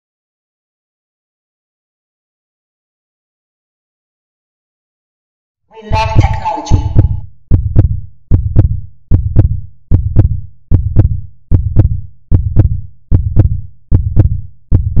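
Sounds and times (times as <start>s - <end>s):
heartbeat thumps: 5.9s - 15.0s.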